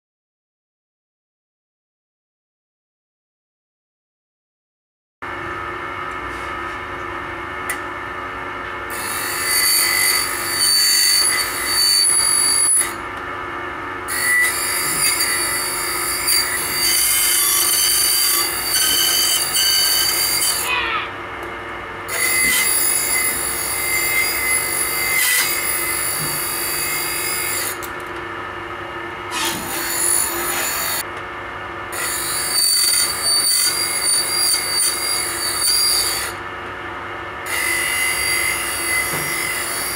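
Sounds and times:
harsh metal grinding on wheel: 14.1s - 20.7s.

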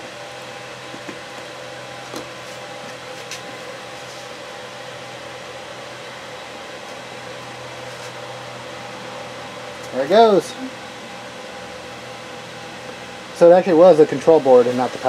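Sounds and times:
fan whirring: 0.0s - 15.0s.

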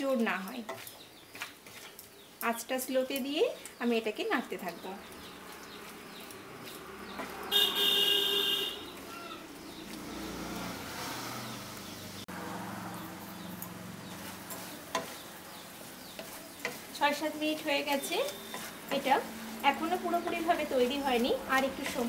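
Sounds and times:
spatula stirring and scraping: 0.5s - 2.3s, 4.5s - 7.7s, 13.0s - 22.0s
horn toot: 7.4s - 8.9s.

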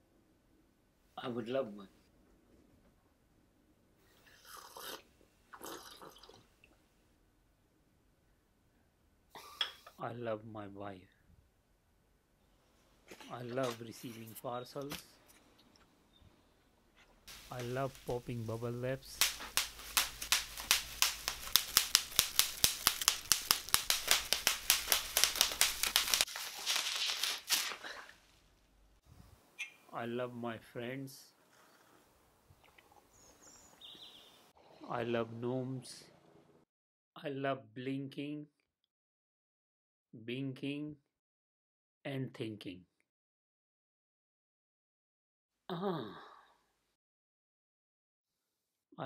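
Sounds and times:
man slurping tea: 4.2s - 6.5s
bubble wrap crackling when twisted: 17.3s - 28.4s
bubble wrap popping: 17.3s - 28.4s.

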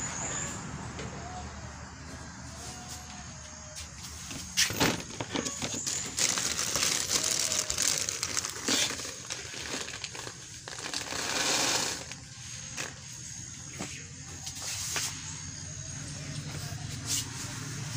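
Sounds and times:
sharp plastic crackle: 4.5s - 13.2s
plastic sack crinkling: 4.7s - 13.1s
hand scooping granules: 5.4s - 13.1s.

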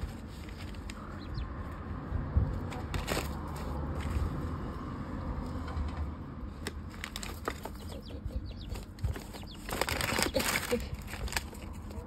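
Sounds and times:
paper rustling and crinkling: 0.0s - 1.1s, 2.6s - 4.5s, 6.5s - 8.1s, 8.7s - 12.0s.

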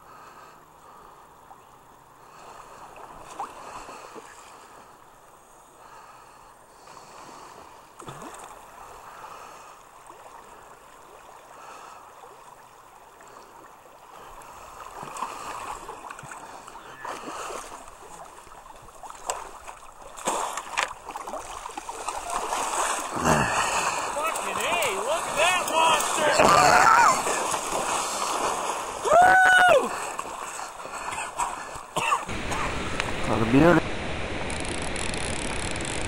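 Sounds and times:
water sloshing and splashing: 2.3s - 4.7s, 7.4s - 29.1s, 29.9s - 33.2s.

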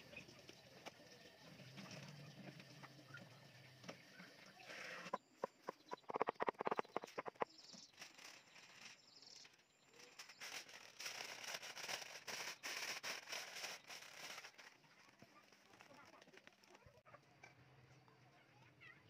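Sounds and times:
aluminium foil crinkling: 7.9s - 17.0s.

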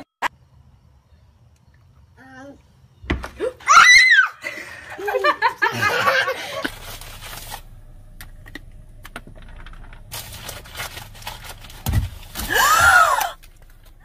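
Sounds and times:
car cabin hum: 6.7s - 12.4s.

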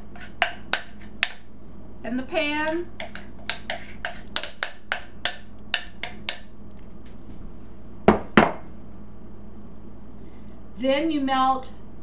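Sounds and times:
metal utensil scraping a bowl: 0.0s - 1.4s, 2.7s - 5.1s.

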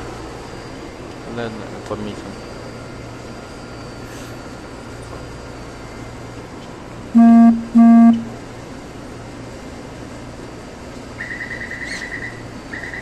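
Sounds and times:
rapid high-pitched beeping: 7.2s - 8.3s
train horn toots: 7.2s - 8.4s.

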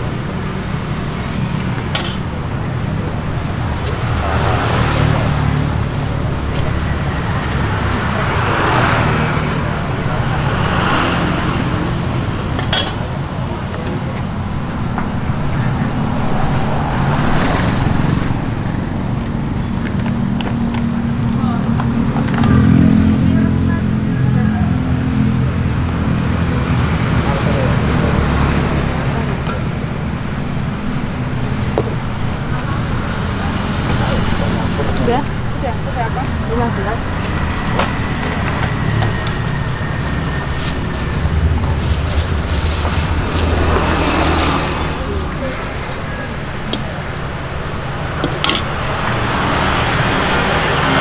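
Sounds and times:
road traffic rumble: 0.0s - 51.0s
vehicle passing: 2.3s - 12.5s, 32.2s - 51.0s
low engine hum: 12.1s - 51.0s.

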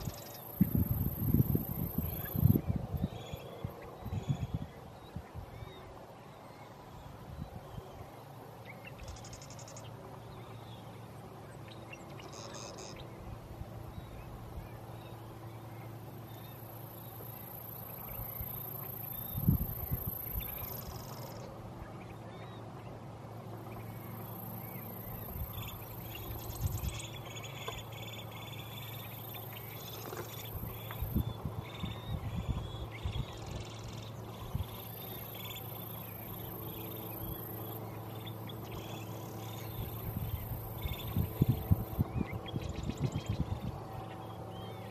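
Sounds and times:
low background hum: 0.0s - 44.9s.

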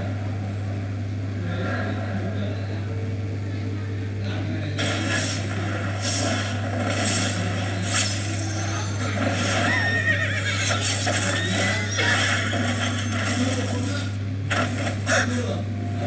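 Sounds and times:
steady low hum: 0.0s - 16.0s
horse whinnying: 9.6s - 12.2s.

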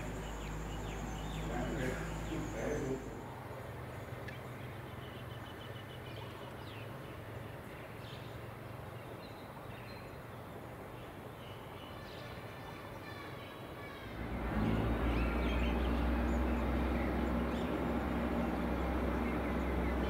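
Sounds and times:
steady low hum: 0.0s - 5.1s, 14.2s - 20.0s.

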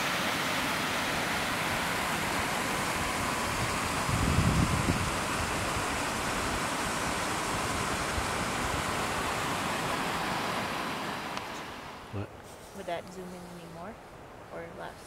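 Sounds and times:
rushing wind: 0.0s - 12.6s
wind buffeting the microphone: 2.9s - 9.6s.

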